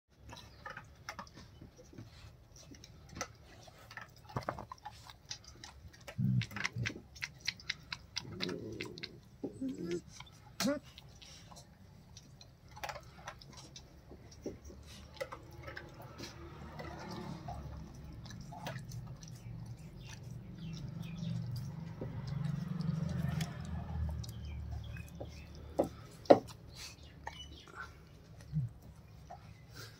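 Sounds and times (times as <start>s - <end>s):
puppy chewing and licking: 0.1s - 29.9s
dog rumbling: 6.0s - 10.8s.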